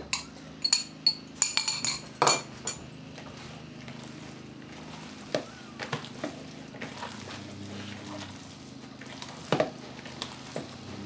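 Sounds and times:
steady low hum: 0.0s - 11.0s
hands mixing mince in bowl: 3.1s - 11.0s.

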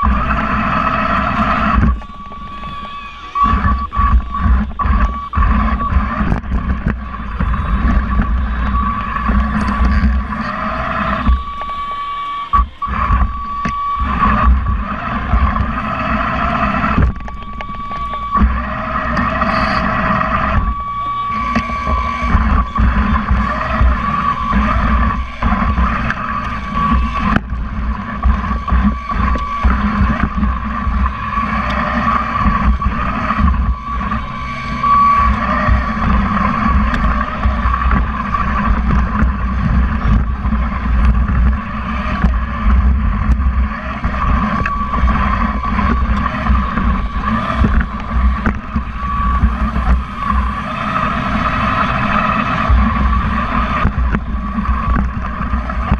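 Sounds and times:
low rumble: 0.0s - 11.9s, 12.5s - 55.9s
electric motors whining: 0.0s - 55.9s.

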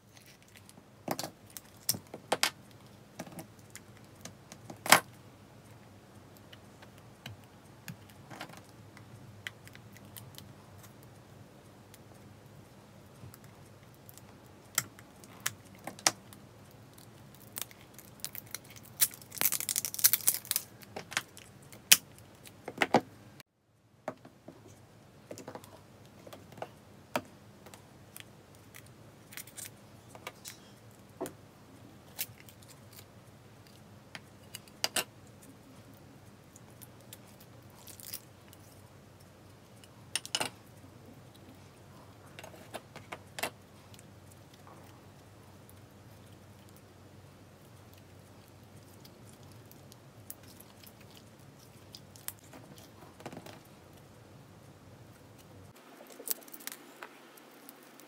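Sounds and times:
crinkling rustle: 13.2s - 22.6s, 55.1s - 58.0s.

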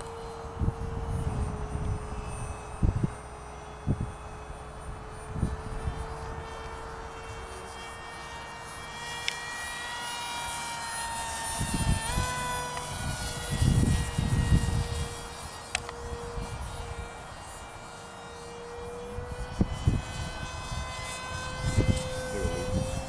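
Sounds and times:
wind rumble on microphone: 0.0s - 7.5s, 11.4s - 17.2s, 18.8s - 23.0s
model jet motor whine: 0.0s - 23.0s.

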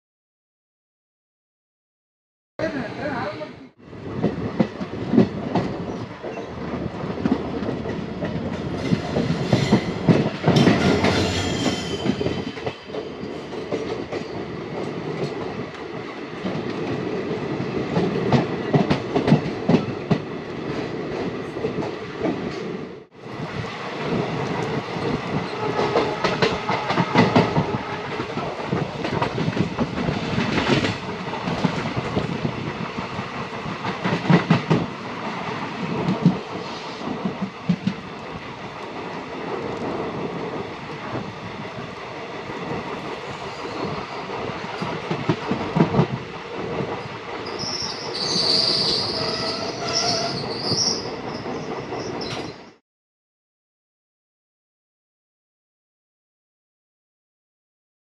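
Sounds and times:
train wheels clattering on rails: 4.2s - 22.7s, 24.0s - 41.3s, 42.5s - 52.8s.

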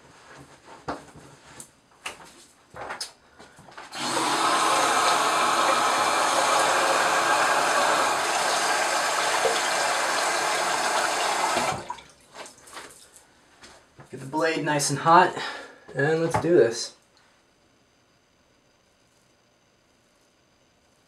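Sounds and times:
tap running into sink: 8.0s - 12.0s.

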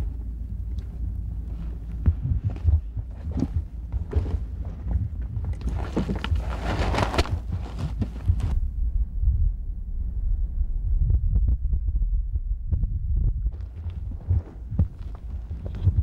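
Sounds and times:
low rumble: 0.0s - 16.0s
clothing and heather rustling: 0.8s - 8.6s
footsteps: 0.8s - 8.6s, 13.5s - 16.0s.

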